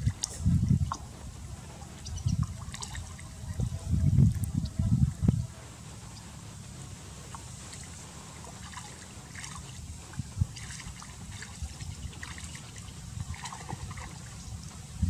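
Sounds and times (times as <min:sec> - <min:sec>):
water splashing and trickling: 0:00.0 - 0:04.8, 0:06.0 - 0:15.0
low rumble: 0:00.0 - 0:12.0.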